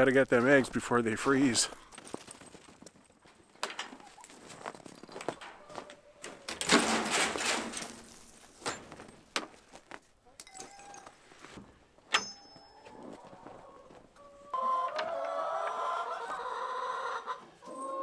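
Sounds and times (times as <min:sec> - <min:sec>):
footsteps: 0:00.0 - 0:14.2
scraping rustle: 0:03.8 - 0:10.0
wooden gate knocks and clicks: 0:12.1 - 0:12.5
metal latch clink: 0:12.1 - 0:12.6.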